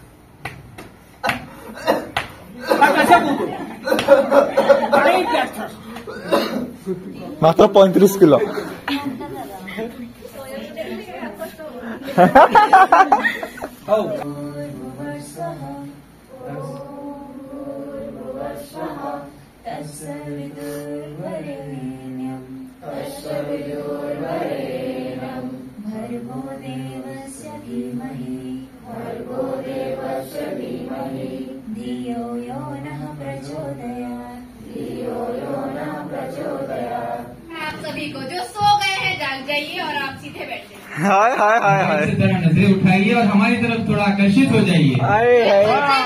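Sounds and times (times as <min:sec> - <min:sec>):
group of voices singing: 0:12.2 - 0:37.9.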